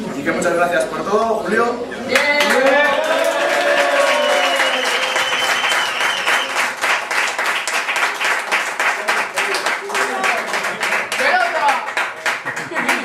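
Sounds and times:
voices cheering: 2.1s - 6.7s
group applauding: 2.1s - 13.0s.

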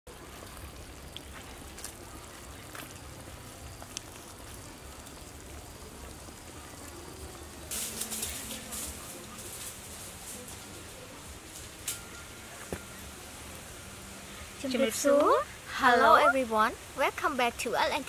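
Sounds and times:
soup bubbling in a wok: 0.1s - 7.7s.

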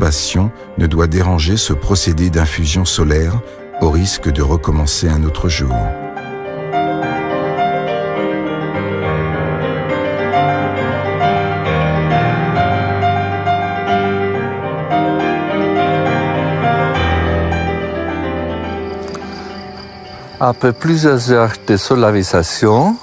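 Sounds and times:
instrumental piano music: 0.0s - 23.0s.

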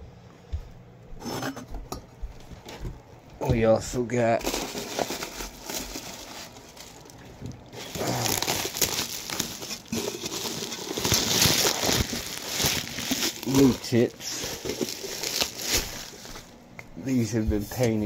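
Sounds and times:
bubble wrap crinkling: 4.3s - 16.6s.

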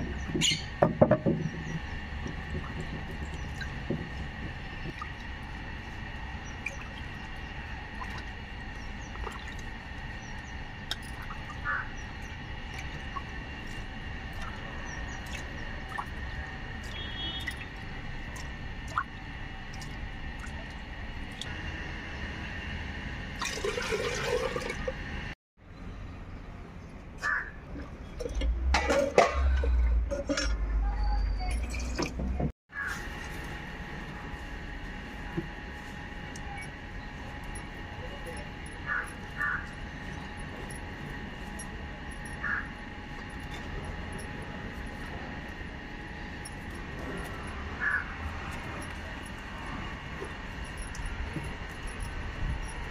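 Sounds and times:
water dripping and splashing: 2.0s - 21.5s.

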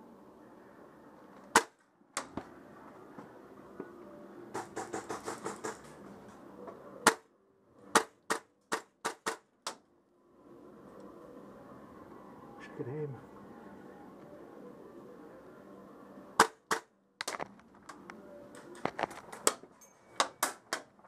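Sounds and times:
airsoft rifle shots cracking: 1.5s - 1.8s, 16.4s - 16.9s.

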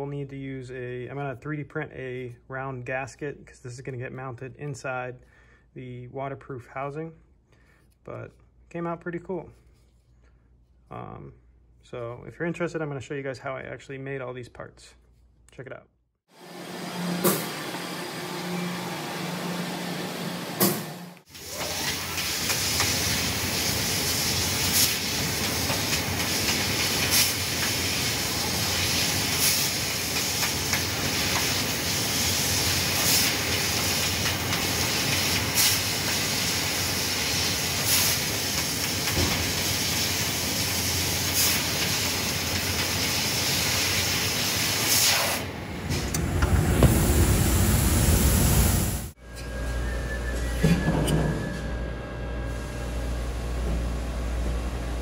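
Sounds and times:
low shop hum: 0.0s - 55.0s
laser cutter hissing: 17.0s - 45.5s.

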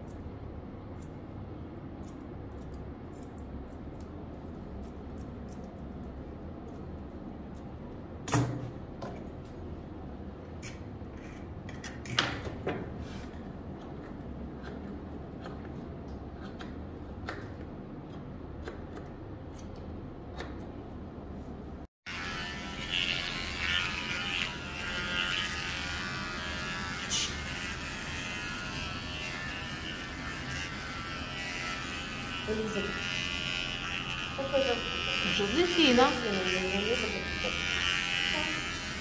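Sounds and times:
scissors snipping dog fur: 0.0s - 0.3s, 0.9s - 1.3s, 2.0s - 8.6s, 13.3s - 20.7s, 22.8s - 39.0s
electric pet clipper running: 22.0s - 39.0s.

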